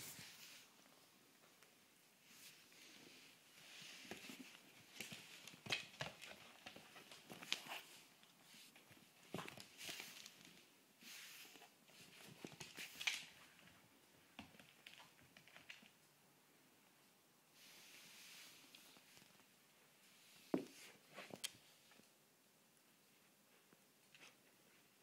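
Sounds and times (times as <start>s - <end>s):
dog paws clicking on wooden floor: 4.0s - 10.7s, 11.5s - 16.0s.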